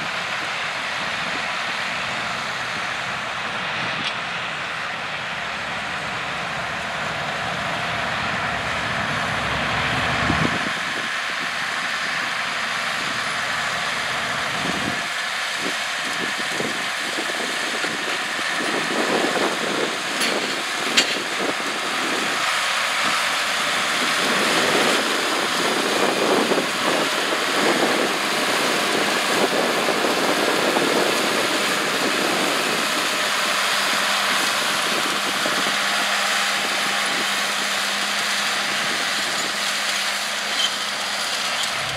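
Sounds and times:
tractor engines running: 0.0 - 41.9.

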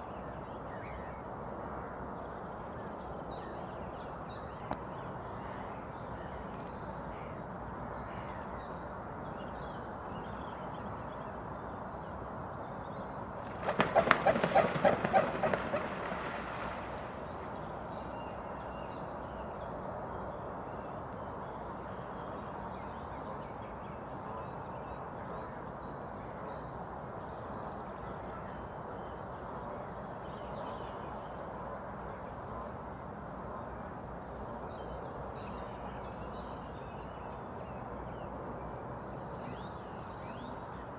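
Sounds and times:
steady outdoor hiss: 0.0 - 40.9
waterfowl pulsed calls: 13.6 - 16.6.

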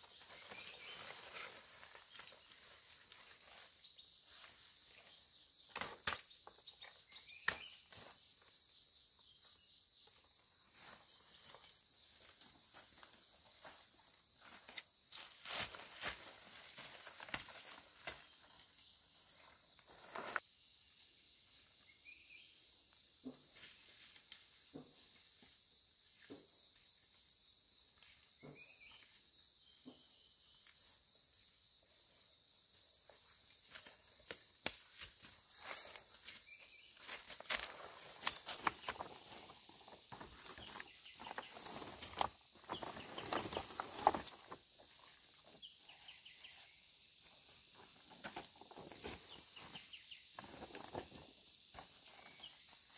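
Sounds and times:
high-pitched insect chorus: 0.0 - 52.9.

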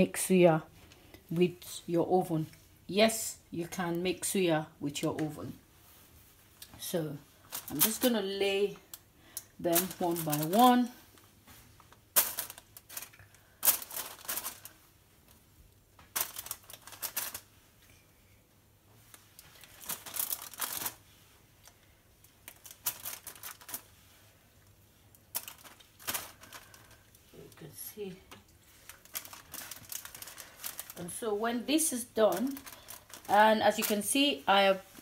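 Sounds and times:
baking paper crinkling: 7.1 - 9.0, 9.6 - 18.0, 19.0 - 35.0.

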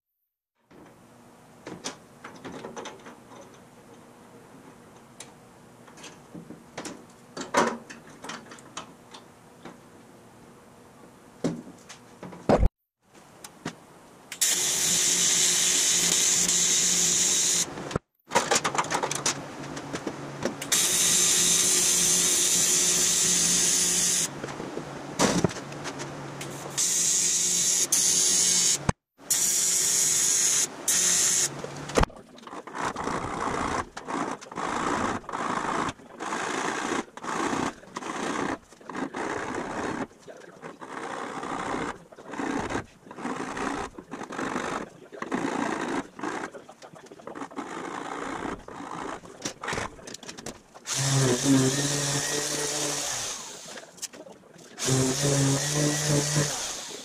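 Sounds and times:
welding arc buzzing hiss: 14.3 - 17.7, 20.6 - 24.3, 26.4 - 31.5.

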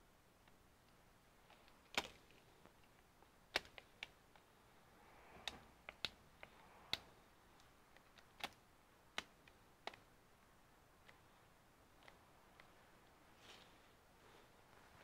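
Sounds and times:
small sharp clicks and taps: 0.4 - 4.5, 5.3 - 10.1
gloves rustling: 0.8 - 15.0.

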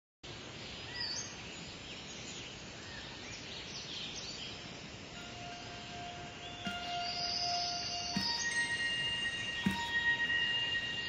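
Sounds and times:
steady outdoor hiss: 0.2 - 11.0
birds chirping: 0.5 - 11.0
held keyboard note: 5.2 - 11.0.

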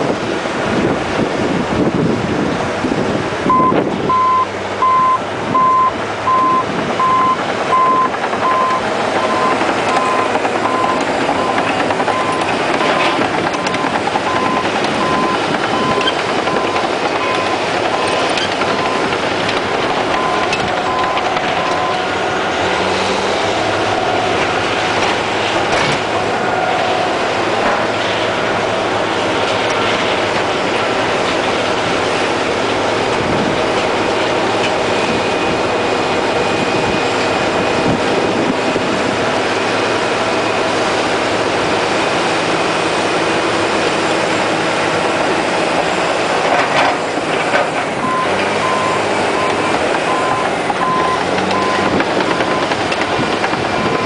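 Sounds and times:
diesel engine running: 0.0 - 54.0
backup alarm beeping: 3.5 - 22.2
steel tracks clanking: 5.2 - 54.0.

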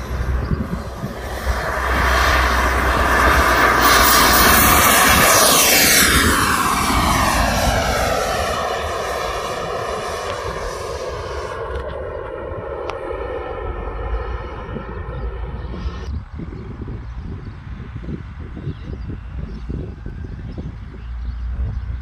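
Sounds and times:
jet turbine rushing: 0.0 - 16.8.

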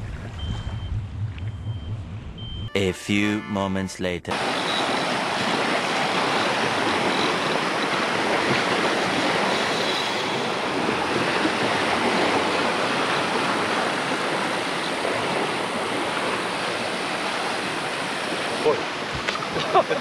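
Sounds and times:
wind: 0.0 - 2.8, 4.3 - 20.0
waves rushing: 4.3 - 20.0.

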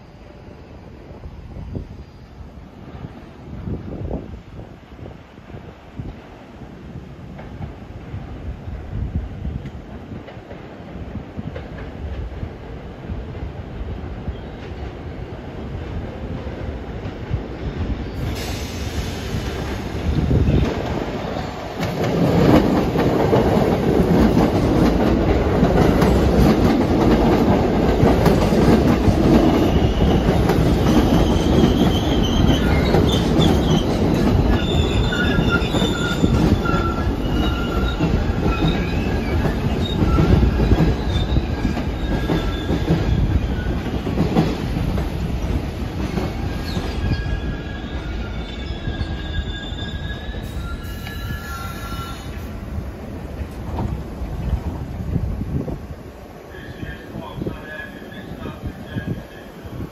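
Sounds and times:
subway wheels rumbling on rails: 0.0 - 59.9
high-pitched wheel squeal: 34.4 - 43.7, 46.5 - 52.4.

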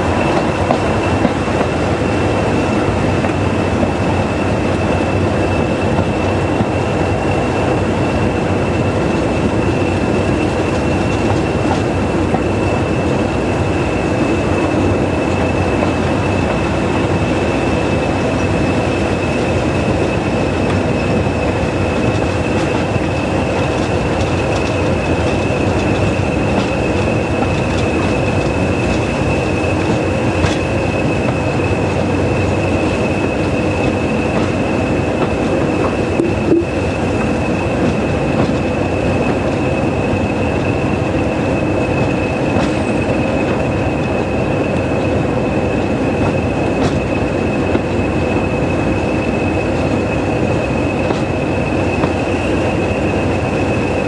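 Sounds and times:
diesel locomotive engines: 0.0 - 54.0.

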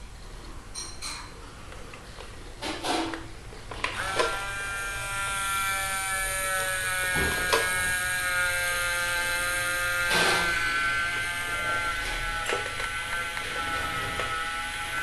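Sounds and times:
small electric motor whining: 3.7 - 15.0.

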